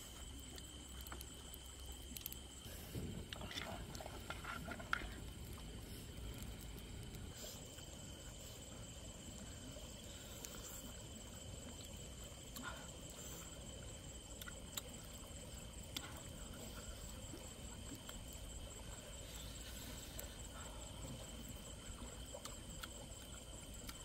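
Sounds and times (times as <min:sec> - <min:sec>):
night insects trilling: 0:00.0 - 0:24.0
wet eating clicks and smacks: 0:14.2 - 0:15.2, 0:15.8 - 0:16.3, 0:22.2 - 0:24.0.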